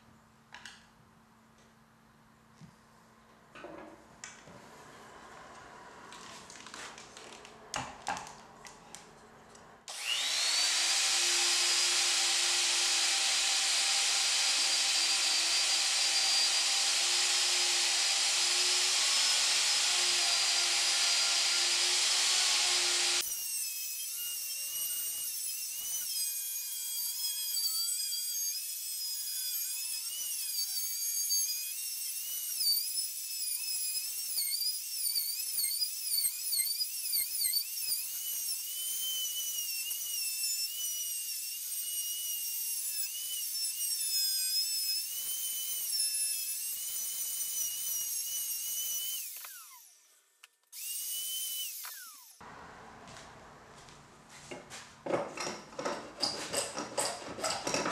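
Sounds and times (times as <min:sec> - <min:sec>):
electric router whining: 0:09.9 - 0:23.2.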